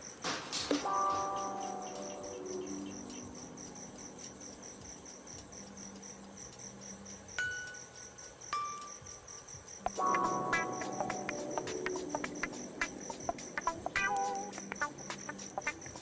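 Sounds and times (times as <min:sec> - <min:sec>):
crickets chirping: 0:00.0 - 0:16.0.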